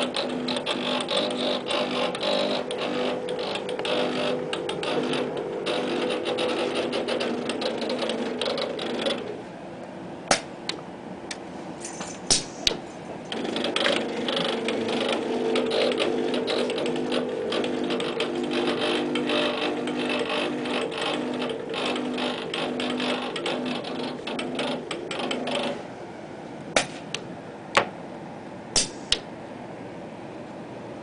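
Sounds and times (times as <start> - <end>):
robot arm motors whirring: 0.0 - 9.4, 11.8 - 25.9.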